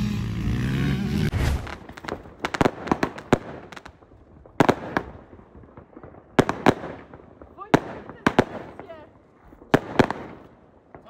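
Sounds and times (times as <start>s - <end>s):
engine-like drone: 0.0s - 1.8s
firecrackers banging: 0.0s - 11.0s.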